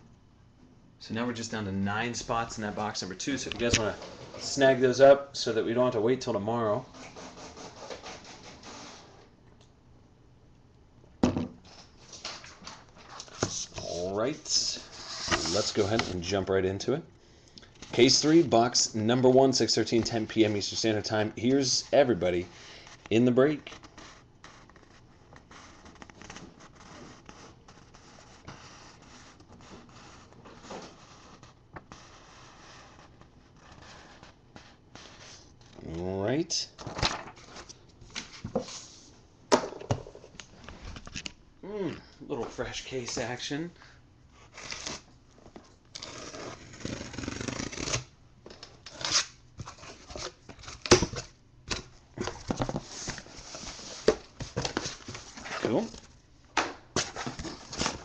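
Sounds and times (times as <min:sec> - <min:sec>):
paper rustling: 0:15.0 - 0:16.3, 0:52.2 - 0:56.1.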